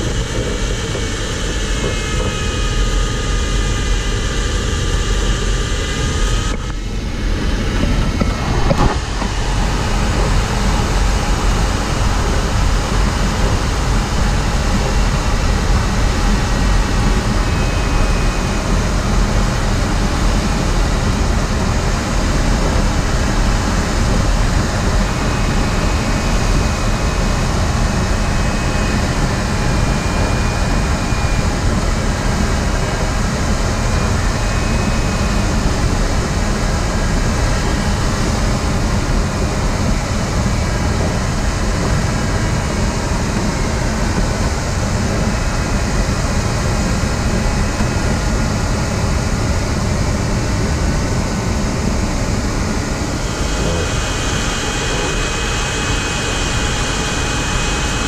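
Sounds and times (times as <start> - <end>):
air rushing around cockpit: 0.0 - 58.0
faint wavering electronic tone: 52.0 - 58.0.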